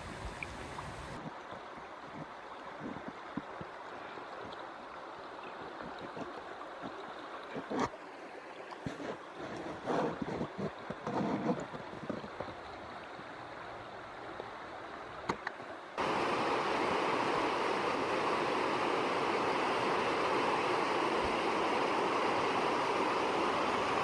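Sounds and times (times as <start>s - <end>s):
river flowing softly: 0.0s - 24.0s
whitewater rapids rushing: 16.0s - 24.0s.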